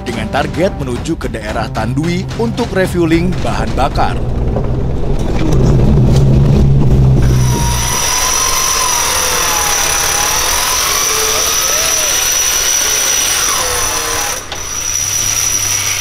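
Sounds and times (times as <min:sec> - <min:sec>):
wavering pitched sounds: 0:01.5 - 0:14.8
off-road vehicle engine running low: 0:02.2 - 0:12.8.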